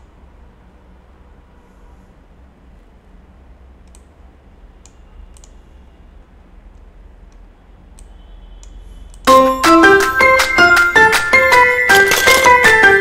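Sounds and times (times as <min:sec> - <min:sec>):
faint computer clicks: 0:04.8 - 0:05.6
bright animation music: 0:09.3 - 0:13.0.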